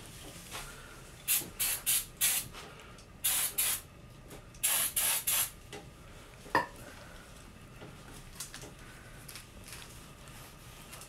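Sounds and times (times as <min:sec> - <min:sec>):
aerosol spray bursts: 0:01.3 - 0:02.5, 0:03.2 - 0:03.8, 0:04.6 - 0:05.6.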